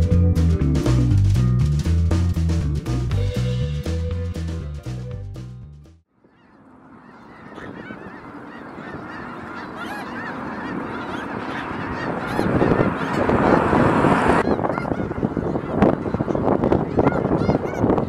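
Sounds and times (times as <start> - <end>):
flock of geese honking: 6.2 - 18.0.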